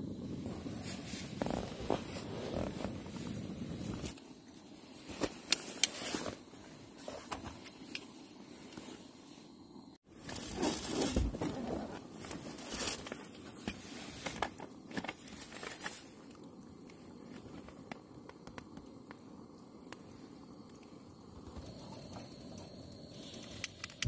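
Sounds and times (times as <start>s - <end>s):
material rustling and crinkling: 0.5s - 4.2s, 10.2s - 16.1s.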